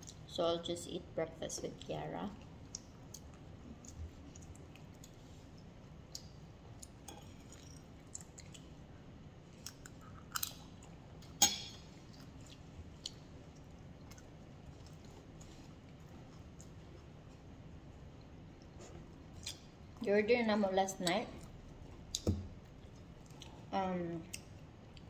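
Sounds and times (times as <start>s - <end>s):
person chewing bread: 2.4s - 20.0s, 21.4s - 23.7s.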